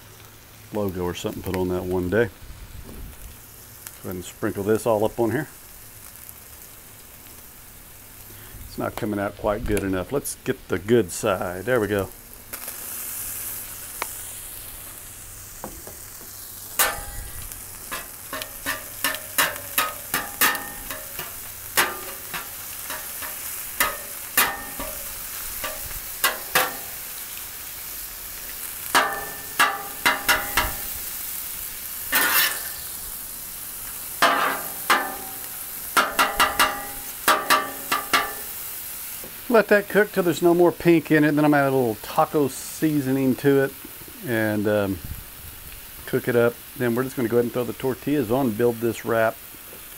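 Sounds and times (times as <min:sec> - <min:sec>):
ground beef sizzling on griddle: 0:00.0 - 0:49.9
metal spatula clacking on griddle: 0:16.8 - 0:27.0, 0:28.9 - 0:31.0, 0:32.1 - 0:32.8, 0:34.2 - 0:38.5.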